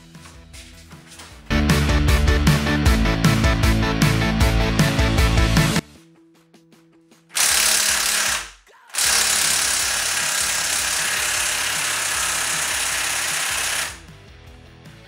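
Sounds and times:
impact wrench hammering: 7.3 - 14.1.

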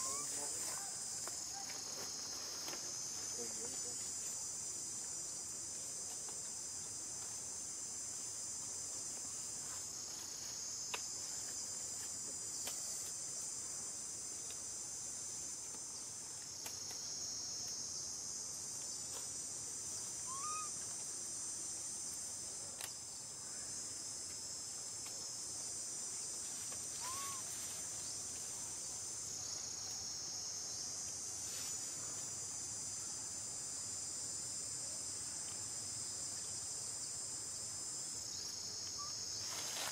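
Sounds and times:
faint chirps: 0.0 - 0.9, 20.2 - 20.8, 27.0 - 27.5, 38.4 - 39.2
insects shrilling: 0.0 - 3.9, 19.9 - 21.2, 26.5 - 28.2.

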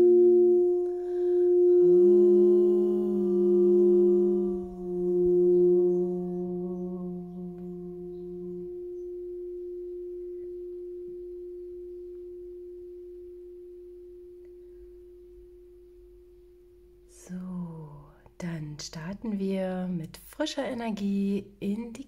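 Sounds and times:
crystal singing bowl ringing: 0.0 - 17.2
low undertone: 0.0 - 19.1.

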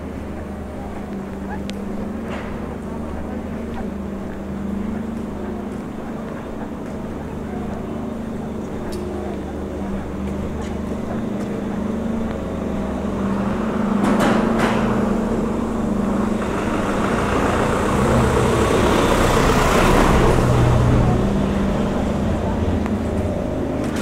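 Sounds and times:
road noise of passing vehicle: 0.0 - 24.0
vehicle engine running: 0.0 - 24.0.

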